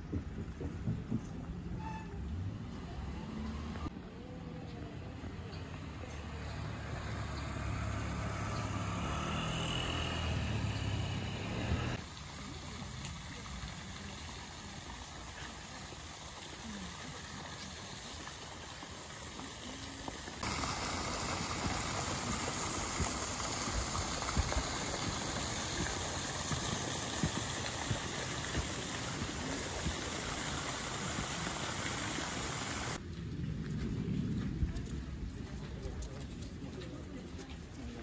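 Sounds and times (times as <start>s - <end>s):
water-like rushing noise: 6.0s - 33.1s.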